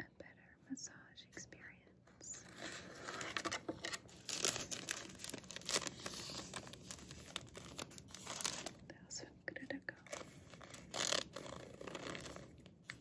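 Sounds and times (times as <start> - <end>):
plastic packaging crinkling: 2.5 - 8.8, 10.0 - 13.0.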